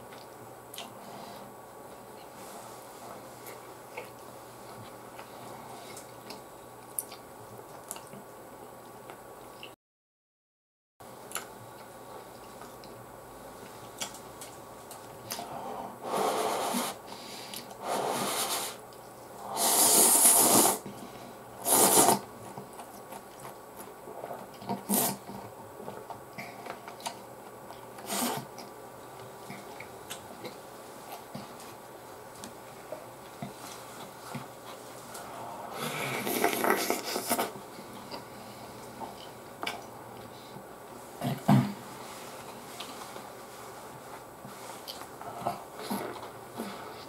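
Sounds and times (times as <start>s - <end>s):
person slurping noodles: 17.8s - 18.8s, 19.5s - 20.8s, 21.6s - 22.3s, 24.8s - 25.2s, 35.5s - 37.6s.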